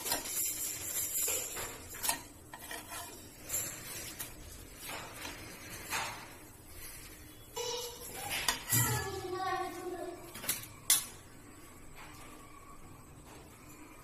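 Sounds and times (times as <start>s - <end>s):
spatula scraping on iron pan: 1.9s - 4.4s.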